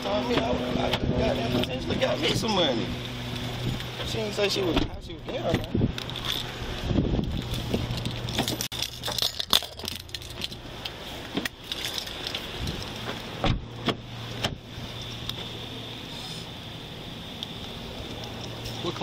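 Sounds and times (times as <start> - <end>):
car door thump: 4.7 - 5.8, 13.4 - 14.6.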